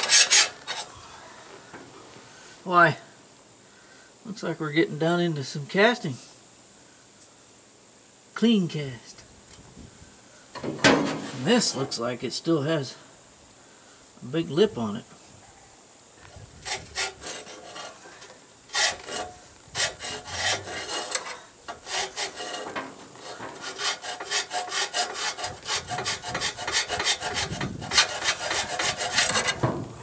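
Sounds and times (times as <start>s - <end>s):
hand file rasping on metal: 0.0s - 0.8s, 16.6s - 18.0s, 18.7s - 29.7s.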